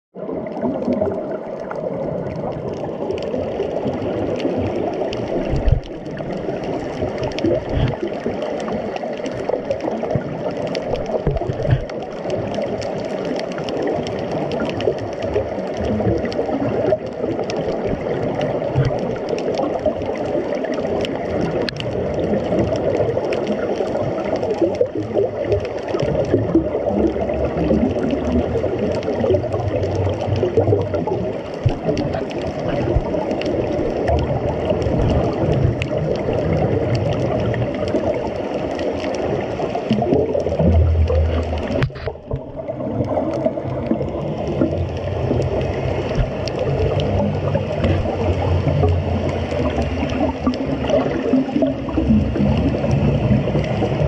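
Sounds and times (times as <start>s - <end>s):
low bubbling rumbles: 0.1s - 54.0s
muffled underwater water noise: 0.1s - 54.0s
faint underwater clicks: 0.2s - 54.0s.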